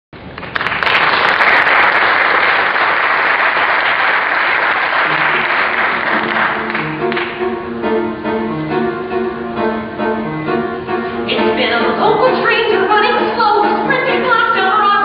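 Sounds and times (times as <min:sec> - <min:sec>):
audience applauding: 0:00.2 - 0:07.5
instrumental music: 0:05.0 - 0:15.0.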